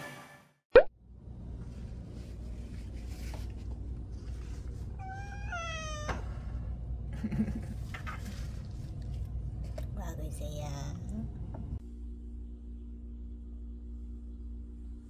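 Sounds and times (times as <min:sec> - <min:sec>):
cat meowing: 0:05.0 - 0:06.4
steady low hum: 0:06.1 - 0:15.0.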